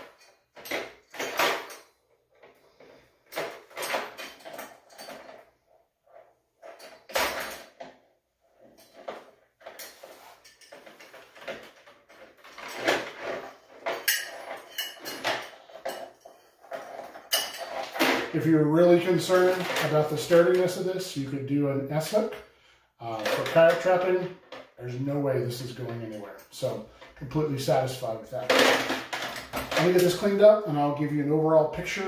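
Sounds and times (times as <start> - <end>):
metallic clinks and scrapes of chain: 0.0 - 7.8, 8.4 - 20.7.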